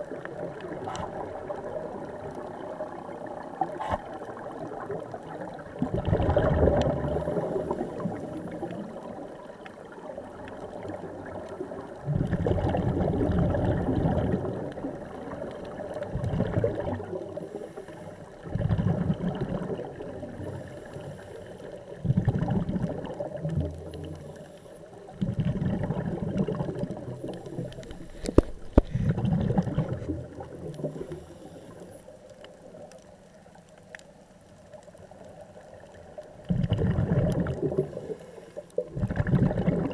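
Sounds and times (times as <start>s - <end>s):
regulator bubbles gurgling underwater: 0.0s - 39.9s
watery hiss: 17.3s - 18.4s, 20.3s - 22.0s, 27.0s - 32.2s, 36.6s - 39.9s.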